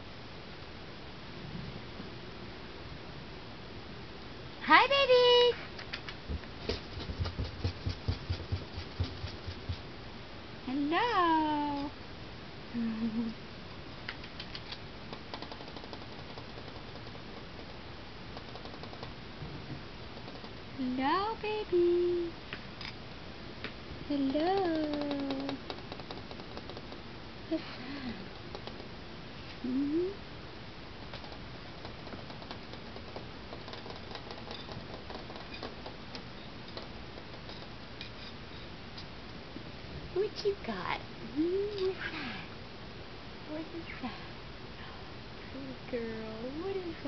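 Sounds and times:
steady low hiss: 0.0s - 47.0s
kitten paws tapping on wood floor: 5.8s - 9.9s
kittens tapping on hardwood floor: 5.9s - 9.8s, 15.1s - 17.7s, 18.4s - 19.1s, 20.2s - 20.6s, 24.6s - 27.0s, 28.5s - 28.9s, 31.0s - 37.7s.

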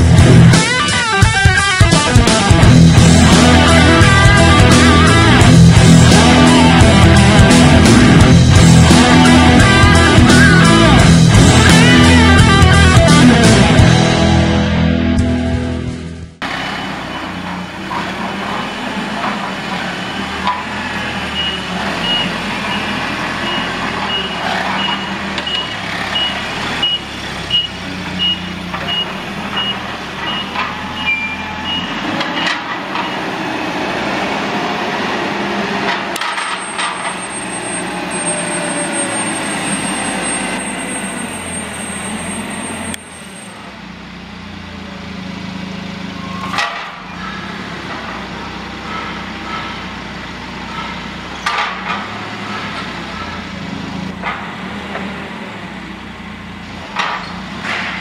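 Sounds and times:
forklift engine running: 0.0s - 58.0s
reverse alarm beeping: 21.3s - 33.3s.

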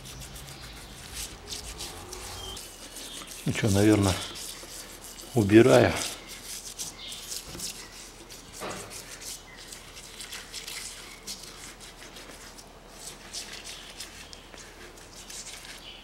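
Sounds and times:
hand tool scraping metal: 0.0s - 11.8s.

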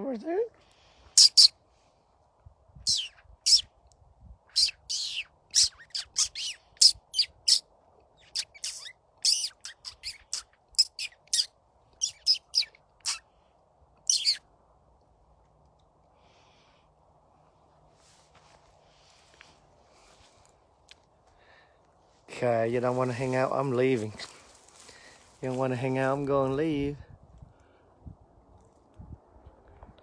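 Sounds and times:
scrub-jay calling: 1.2s - 1.6s, 2.8s - 3.7s, 4.5s - 13.3s, 14.1s - 14.5s.

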